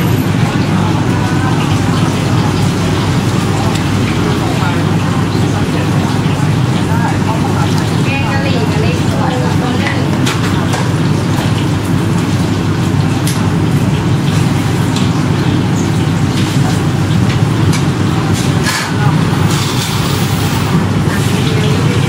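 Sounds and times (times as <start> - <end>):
faint voices: 0.0 - 11.1, 18.0 - 22.0
low traffic rumble: 0.0 - 22.0.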